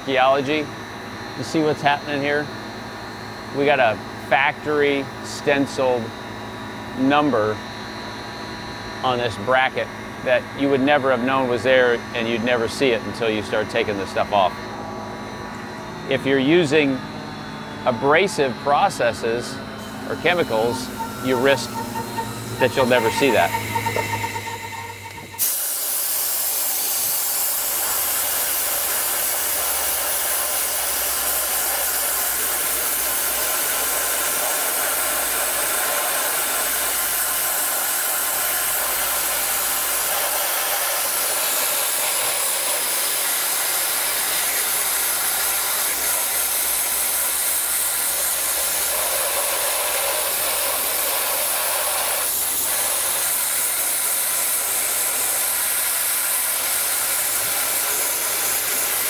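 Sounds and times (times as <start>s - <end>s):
dry ice blasting gun hissing: 18.2s - 59.0s.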